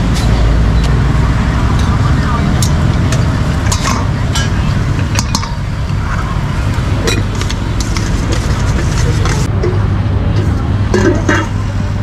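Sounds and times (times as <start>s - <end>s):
low rumble of road traffic: 0.0s - 12.0s
metal utensil clinking and scraping: 3.6s - 5.6s, 7.0s - 9.8s, 10.4s - 11.7s.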